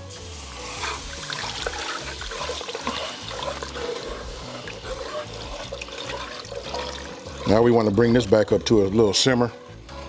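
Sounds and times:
liquid pouring into pot: 0.7s - 8.6s.

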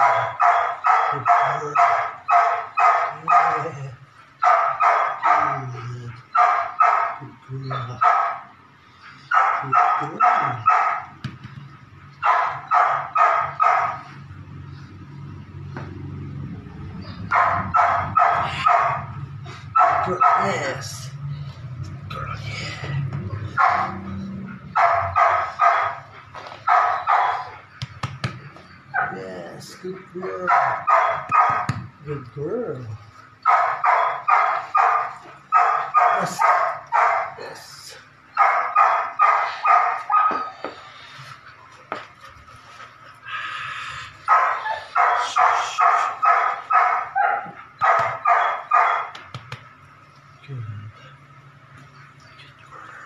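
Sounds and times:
puppy barking: 0.0s - 3.8s, 4.4s - 8.5s, 9.2s - 11.2s, 12.2s - 14.2s, 17.2s - 20.9s, 23.4s - 27.9s, 28.6s - 29.2s, 30.2s - 31.8s, 33.4s - 37.5s, 38.3s - 40.8s, 44.2s - 49.3s.

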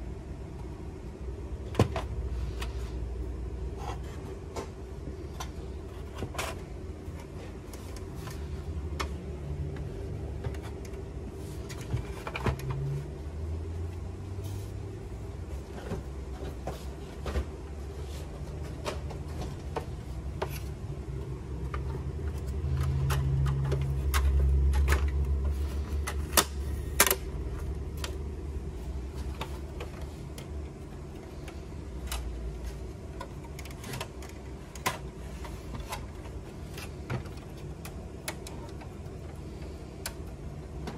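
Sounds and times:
steady low rumble: 0.0s - 40.9s
hard plastic parts clicking and knocking: 4.4s - 11.1s, 18.6s - 20.8s.

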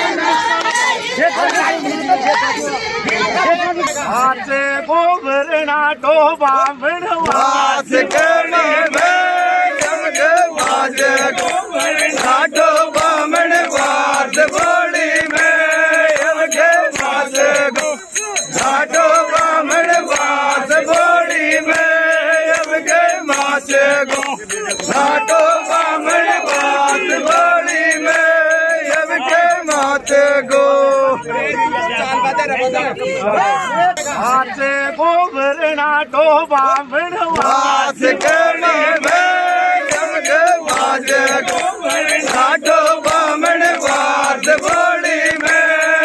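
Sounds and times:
women singing folk song: 0.0s - 17.8s, 32.8s - 46.0s
hands clapping: 0.4s - 3.3s, 6.4s - 30.2s, 36.6s - 46.0s.

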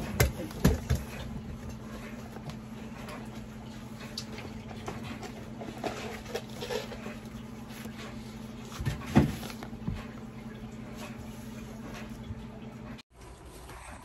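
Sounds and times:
foam and fabric rustling: 5.1s - 12.4s.

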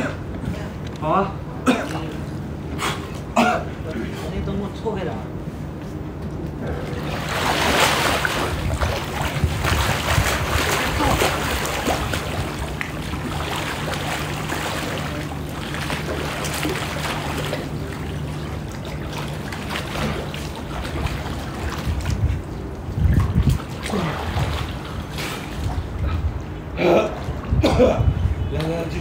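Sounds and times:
steady low hum: 0.0s - 29.0s
water sloshing and splashing: 6.2s - 28.9s.

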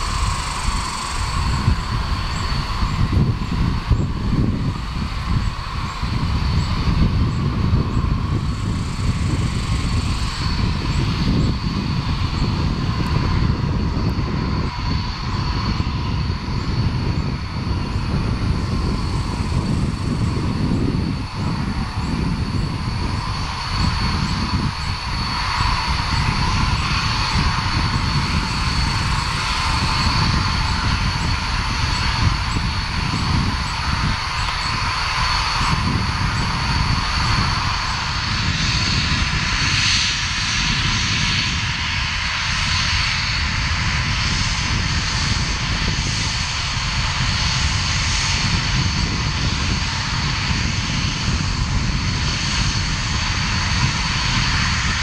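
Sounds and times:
jet engine with high whine: 0.0s - 55.0s.

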